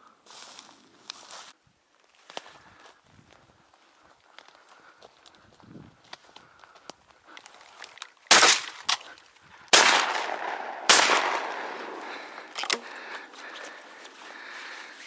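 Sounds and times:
gunshot echo: 8.3s - 9.0s, 9.7s - 12.9s
shotgun shots: 8.3s - 9.1s, 9.7s - 13.0s.

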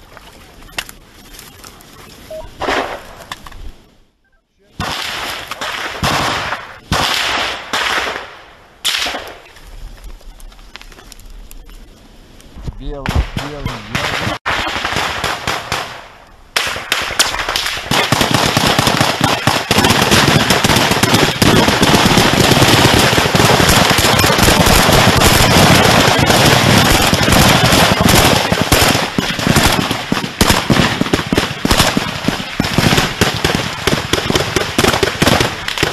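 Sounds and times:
rapid assault rifle gunfire: 4.8s - 8.3s, 13.1s - 35.9s.

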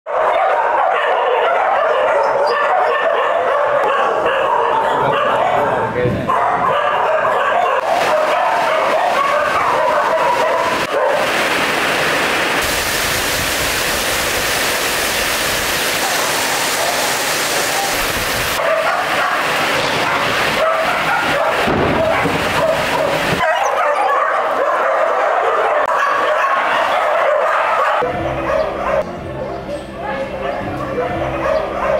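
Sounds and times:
dogs barking and yipping: 0.1s - 11.6s, 15.7s - 31.9s
heavy rain falling: 7.8s - 23.8s.

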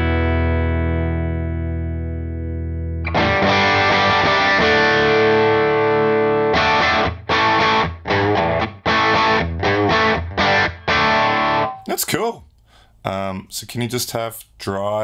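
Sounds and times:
electric guitar chords: 0.0s - 11.9s.

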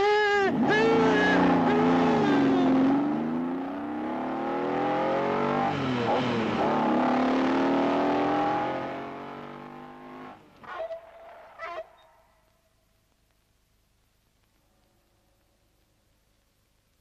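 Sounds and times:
sports car engine revving: 0.6s - 10.4s.

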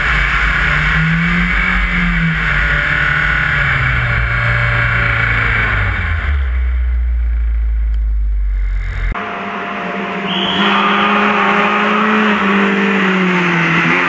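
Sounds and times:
road and wind rush: 0.0s - 9.5s
car engine: 0.0s - 14.0s.

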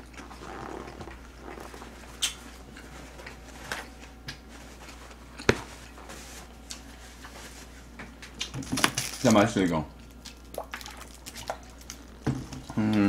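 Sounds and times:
soft chewing: 0.0s - 8.5s
steady low hum: 0.0s - 13.0s.

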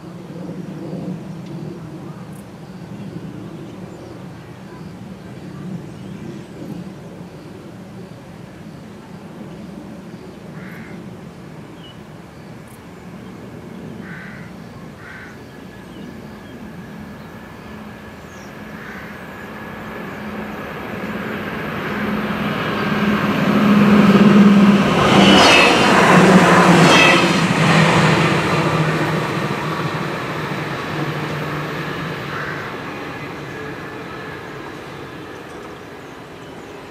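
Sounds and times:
train passing: 11.2s - 36.9s.

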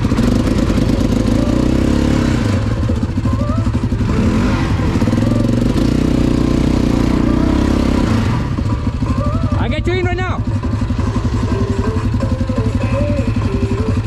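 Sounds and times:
atv engine running: 0.0s - 14.0s.

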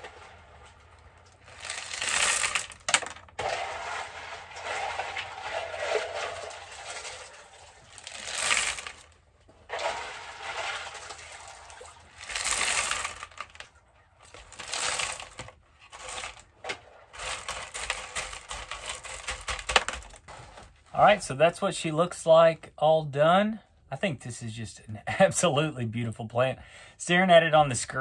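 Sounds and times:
clay pebbles poured into pot: 0.0s - 13.6s, 14.3s - 16.5s.

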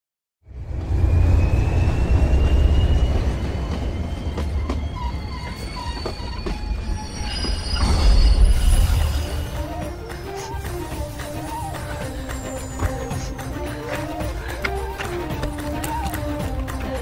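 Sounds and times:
train rumbling on track: 0.4s - 17.0s
high wheel squeal: 0.7s - 9.8s.

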